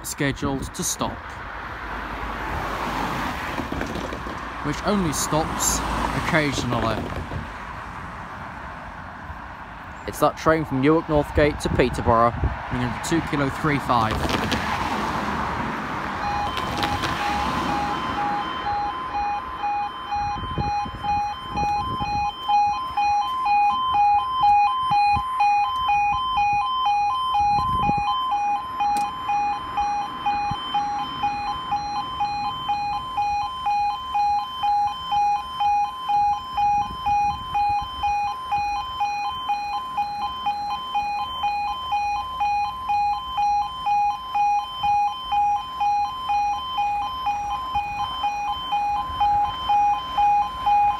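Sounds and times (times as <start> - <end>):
low thuds: 6.6 - 7.6
two-tone level crossing alarm: 16.2 - 50.9.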